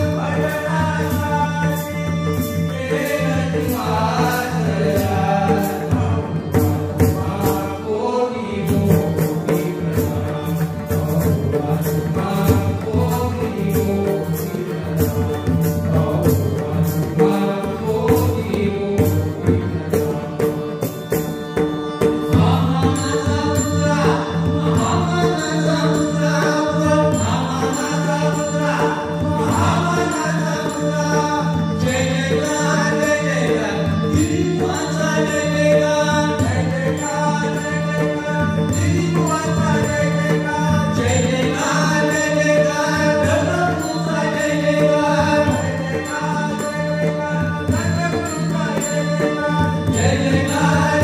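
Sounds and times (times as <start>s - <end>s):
men singing devotional song: 0.0s - 51.0s.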